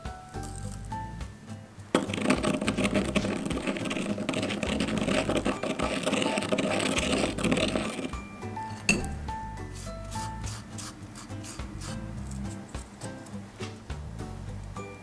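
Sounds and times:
pestle grinding salt in mortar: 2.0s - 13.1s.

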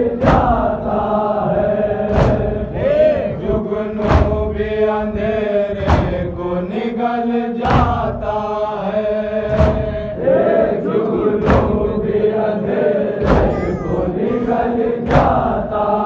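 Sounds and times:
voices chanting: 0.0s - 16.0s
sharp beat: 13.2s - 15.6s.

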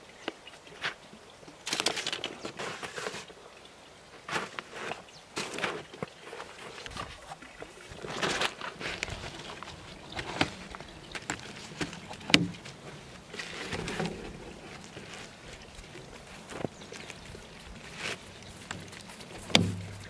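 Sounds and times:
canvas rustling and scraping: 1.6s - 3.3s, 4.2s - 20.0s
frame clicks and knocks: 18.8s - 20.0s.

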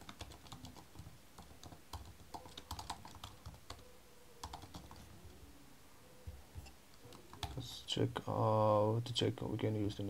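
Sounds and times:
keyboard typing: 0.0s - 5.1s, 7.0s - 7.6s.

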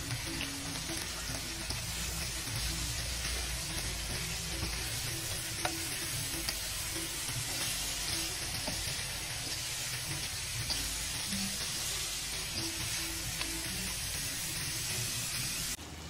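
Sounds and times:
food sizzling in a pan: 0.0s - 15.8s.

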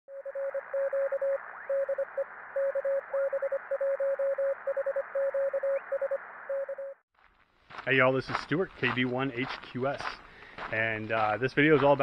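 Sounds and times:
morse code tone: 0.1s - 7.0s.

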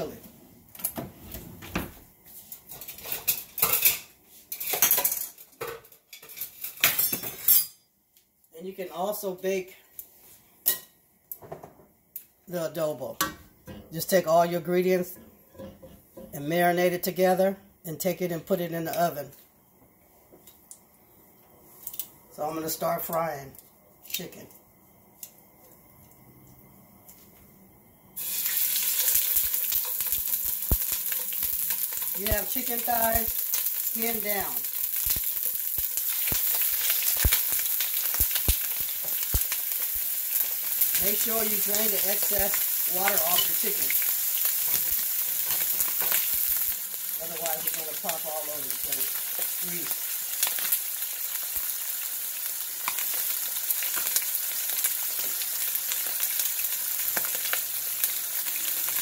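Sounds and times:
dishes and utensils clattering: 2.6s - 7.8s, 15.5s - 16.3s
chicken sizzling in hot oil: 28.2s - 59.0s.

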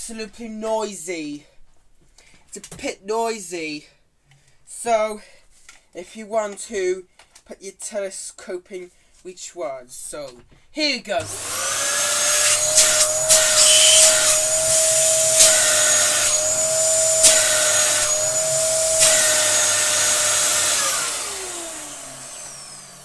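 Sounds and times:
vacuum cleaner whining: 11.2s - 23.0s.

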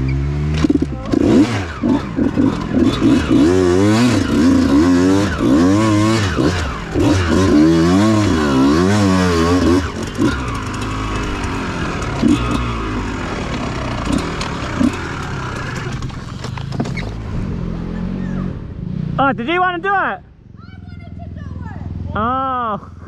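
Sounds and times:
dirt bike engine revving: 0.0s - 16.4s.

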